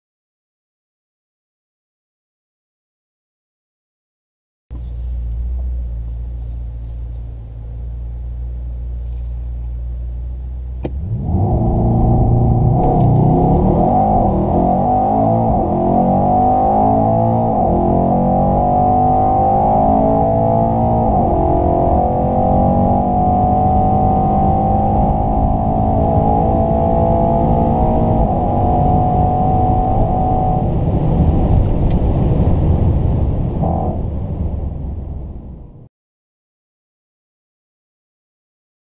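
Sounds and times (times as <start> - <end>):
car engine accelerating through gears: 4.7 - 35.9.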